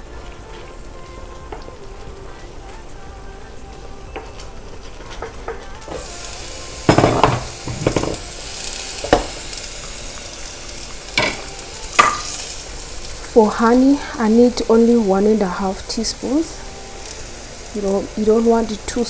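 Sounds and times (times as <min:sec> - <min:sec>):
food sizzling in a pan: 0:00.0 - 0:19.0
spoon knocking against pan: 0:06.9 - 0:08.2, 0:11.2 - 0:12.3.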